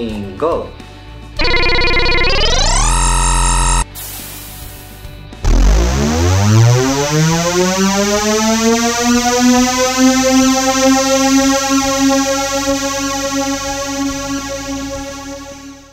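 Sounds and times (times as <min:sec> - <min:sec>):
rising buzzy synthesizer tone: 0:01.4 - 0:03.9, 0:05.4 - 0:15.9.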